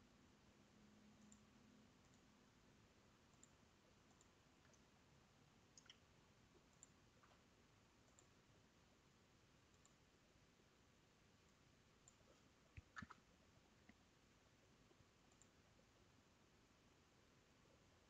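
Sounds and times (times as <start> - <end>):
faint computer mouse clicks: 15.3 - 15.6.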